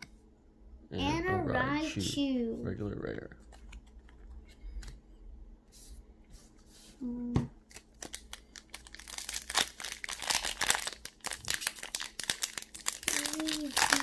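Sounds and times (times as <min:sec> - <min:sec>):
foil wrapper crinkling: 0:07.6 - 0:14.0.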